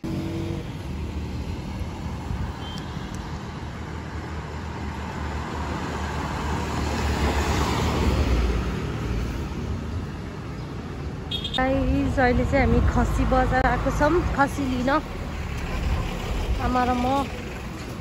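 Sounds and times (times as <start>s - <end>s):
road traffic rumble: 0.0s - 18.0s.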